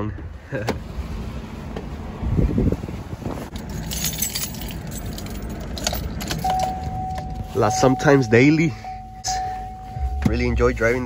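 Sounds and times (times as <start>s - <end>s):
low steady rumble: 1.1s - 11.0s
light clinks and rattles: 3.5s - 7.3s
steady high tone: 6.5s - 11.0s.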